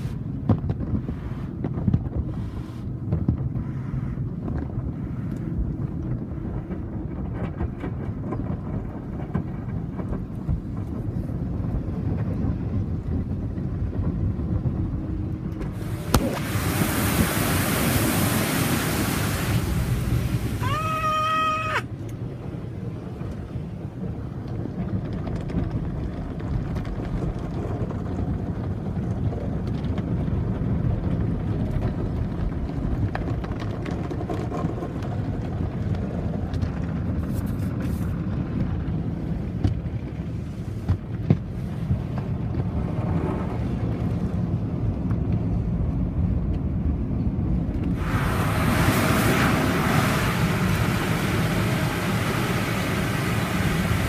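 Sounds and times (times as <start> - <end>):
water and wash brushes rumbling: 3.5 - 29.9, 47.9 - 54.0
hissing rush of spray: 15.8 - 21.8, 48.0 - 54.0.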